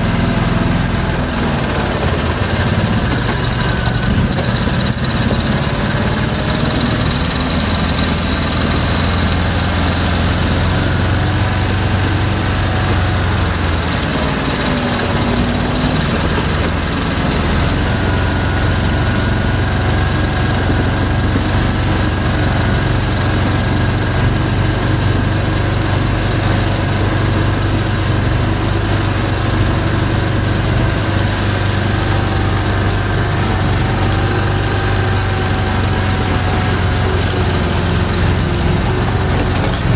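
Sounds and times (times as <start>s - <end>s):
vehicle engine humming: 0.0s - 39.9s.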